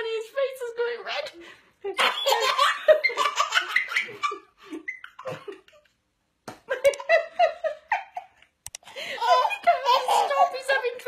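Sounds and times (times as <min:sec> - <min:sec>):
woman laughing: 0:06.7 - 0:08.4, 0:09.0 - 0:11.0.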